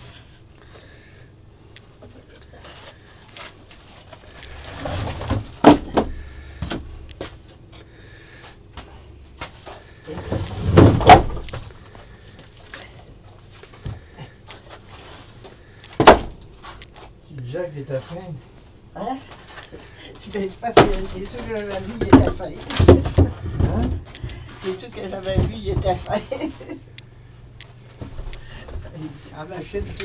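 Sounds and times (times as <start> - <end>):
knocks and clatter on workbench: 21.9 - 24.1.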